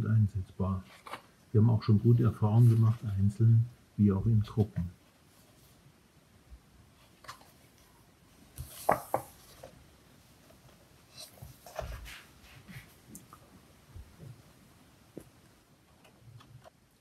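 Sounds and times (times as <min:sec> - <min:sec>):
paper rustling: 0:00.8 - 0:01.3, 0:08.5 - 0:09.8, 0:10.6 - 0:13.0
book page turning: 0:00.9 - 0:01.3.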